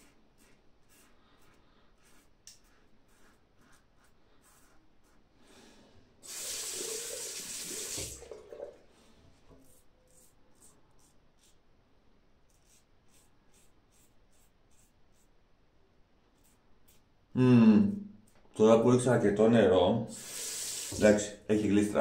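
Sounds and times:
tap running into sink: 7.4s - 8.8s, 20.8s - 21.2s.

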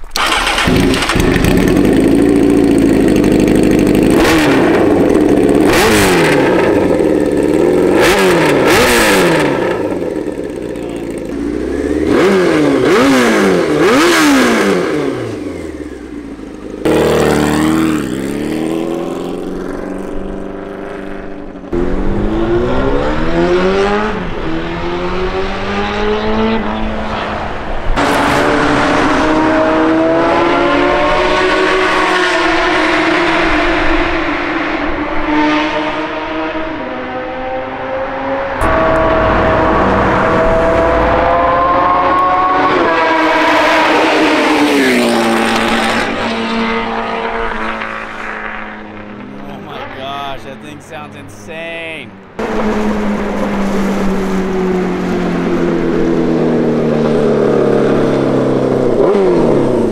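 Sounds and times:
motorcycle engine revving: 0.0s - 51.0s, 52.3s - 59.9s
motorcycle accelerating hard: 0.0s - 59.9s.

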